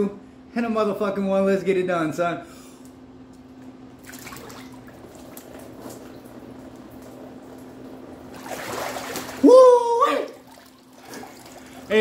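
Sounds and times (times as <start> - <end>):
steady low hum: 0.0 - 12.0
water sloshing and dripping: 3.6 - 12.0
water splashing and streaming: 4.0 - 6.0, 8.2 - 9.6, 10.2 - 11.9.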